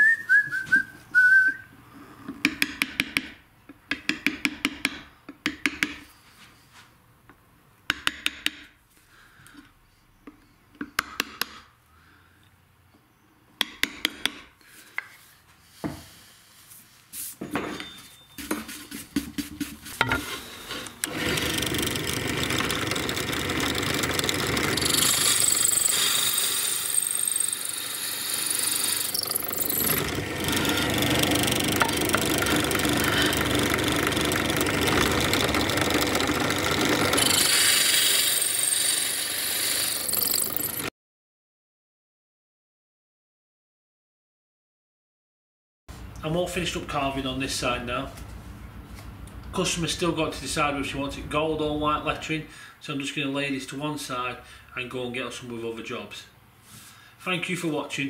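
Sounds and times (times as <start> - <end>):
mallet striking chisel on slate: 3.9 - 6.0, 7.9 - 8.6, 13.6 - 14.5
power saw running: 20.9 - 40.9.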